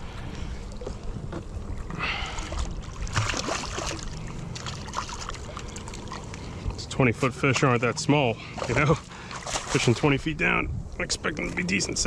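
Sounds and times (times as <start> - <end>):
fish thrashing and splashing: 2.0 - 6.7, 8.4 - 10.2.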